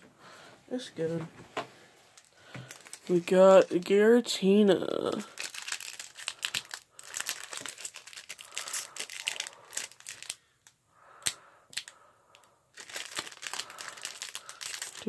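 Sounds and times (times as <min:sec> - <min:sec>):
foil wrapper crinkling and tearing: 0:02.2 - 0:04.0, 0:04.8 - 0:15.0
sharp crackles: 0:12.8 - 0:15.0.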